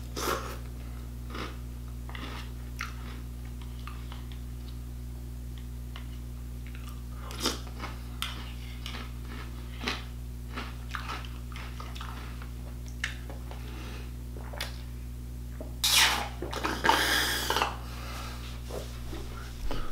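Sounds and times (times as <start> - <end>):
steady low hum: 0.0 - 19.9
chewing cereal: 1.3 - 4.4, 6.0 - 13.7.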